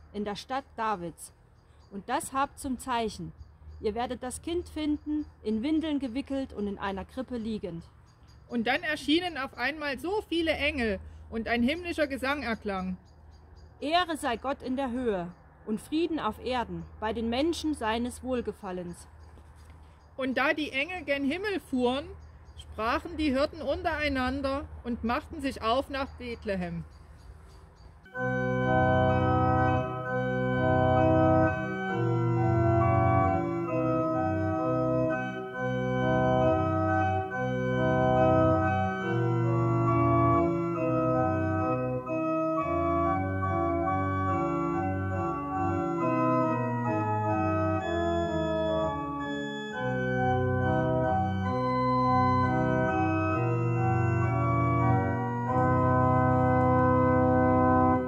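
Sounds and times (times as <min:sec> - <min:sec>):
organ playing held chords: 0:28.1 - 0:58.0.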